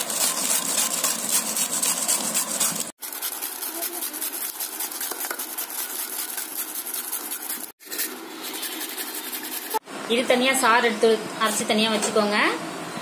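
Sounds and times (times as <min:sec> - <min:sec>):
vegetables grated on metal grater: 0:00.0 - 0:09.8.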